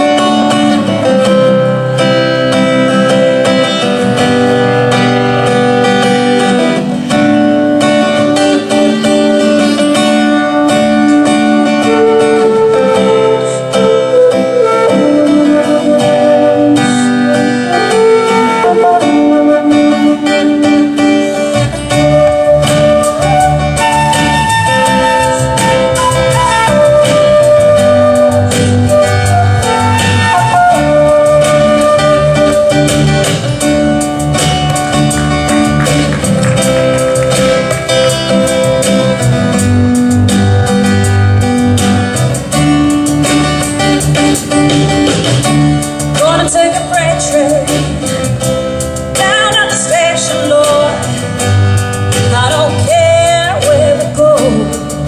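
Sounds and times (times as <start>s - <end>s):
flute melody: 0.0s - 48.5s
guitar accompaniment: 0.0s - 55.0s
woman singing with vibrato: 46.2s - 48.2s, 49.1s - 51.6s, 52.2s - 55.0s.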